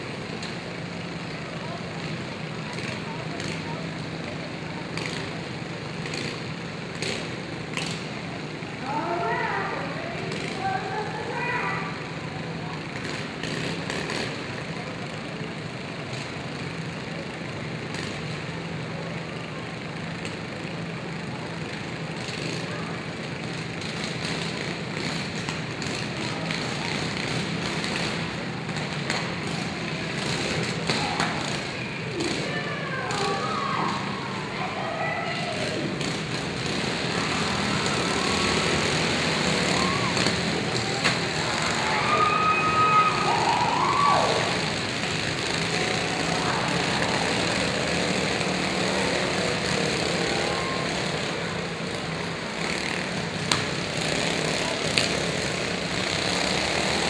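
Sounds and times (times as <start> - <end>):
lawn mower engines humming: 0.0 - 57.0.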